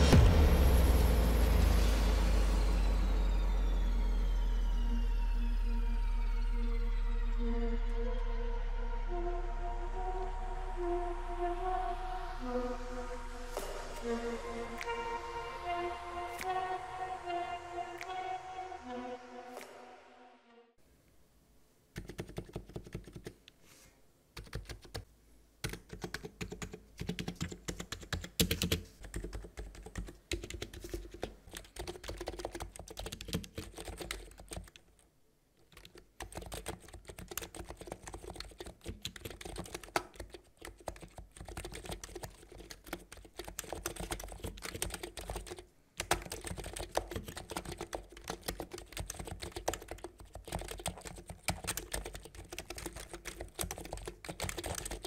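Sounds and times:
keyboard typing: 22.0 - 23.4, 24.4 - 35.0, 35.6 - 55.0.

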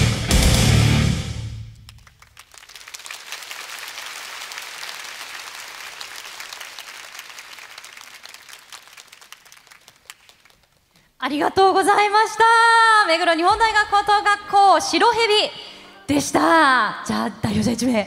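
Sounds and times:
audience applauding: 1.7 - 11.0.

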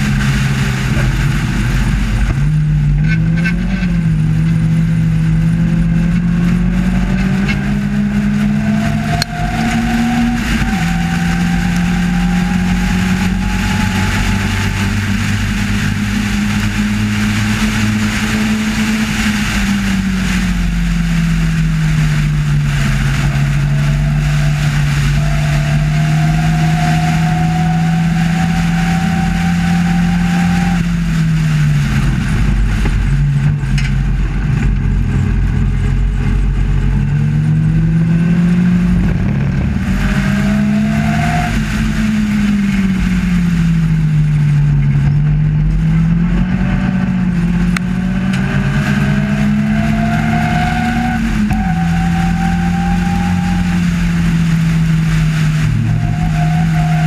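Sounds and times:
race car engine revving: 0.0 - 57.0
wind rush: 0.0 - 57.0.

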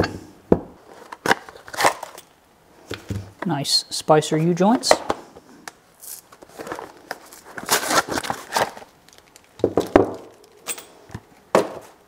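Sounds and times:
paper packaging rustling: 0.8 - 2.3, 6.0 - 11.5.

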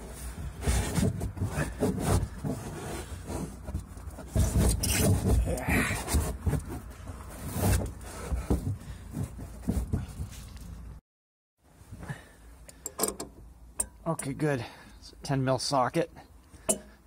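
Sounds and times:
rustling and scraping of handling: 0.0 - 11.0.

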